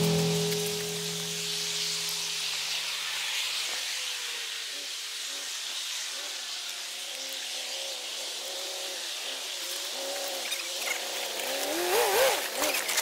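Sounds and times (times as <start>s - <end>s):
steady hiss: 0.0s - 12.9s.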